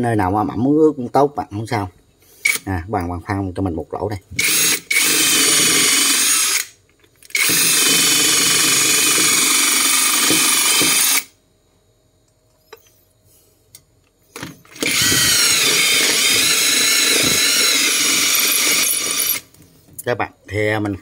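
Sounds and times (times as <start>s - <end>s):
impact driver motor whining: 7.3s - 11.3s, 14.4s - 19.5s.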